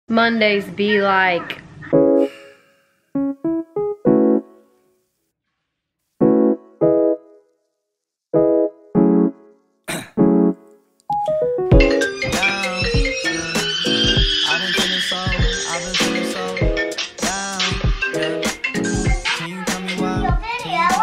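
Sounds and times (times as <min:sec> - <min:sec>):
electric piano chords: 0:01.9 - 0:02.4, 0:03.2 - 0:04.8, 0:06.2 - 0:07.4, 0:08.4 - 0:09.5, 0:10.2 - 0:19.2
backing track music: 0:03.2 - 0:04.7, 0:06.2 - 0:07.4, 0:08.4 - 0:09.6, 0:10.2 - 0:21.0.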